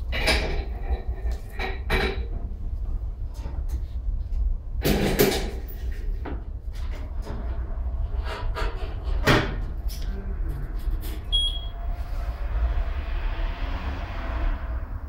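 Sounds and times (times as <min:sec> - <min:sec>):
knocks and clatter of wheel: 0:00.0 - 0:02.6, 0:04.8 - 0:11.4
balancer beep: 0:11.3 - 0:11.8.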